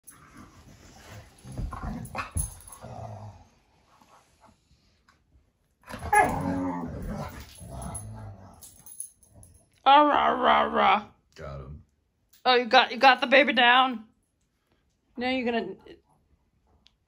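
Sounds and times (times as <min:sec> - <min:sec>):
dogs growling: 0:00.1 - 0:03.7, 0:05.9 - 0:09.6.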